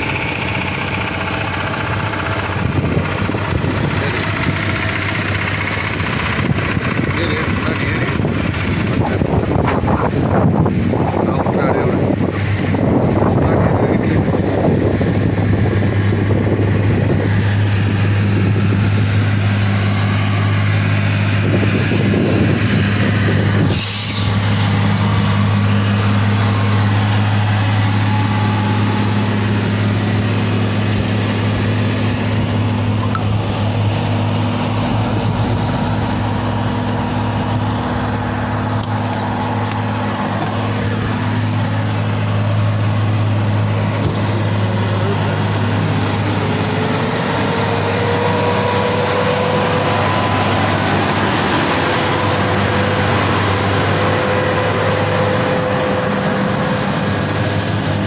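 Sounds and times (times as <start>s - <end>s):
road and wind noise: 0.0s - 58.0s
truck engine droning: 0.0s - 58.0s
sharp hiss: 23.7s - 24.4s.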